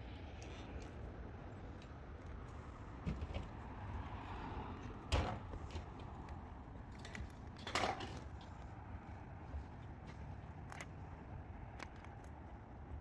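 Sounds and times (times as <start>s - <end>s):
small clicks: 11.6s - 12.6s.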